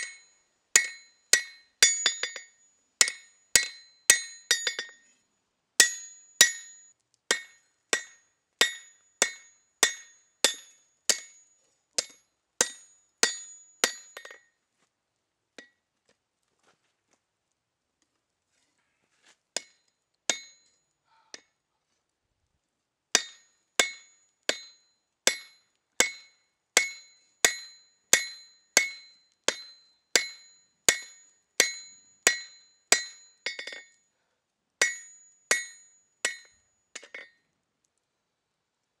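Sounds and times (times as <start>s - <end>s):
hammer ringing on anvil: 0.8s - 5.0s, 5.8s - 11.4s, 12.0s - 14.4s, 19.6s - 20.8s, 23.2s - 34.0s, 34.8s - 37.4s.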